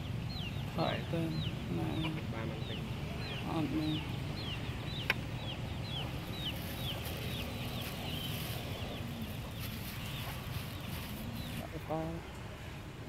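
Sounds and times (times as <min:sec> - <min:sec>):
bird chirping: 0:00.0 - 0:12.4.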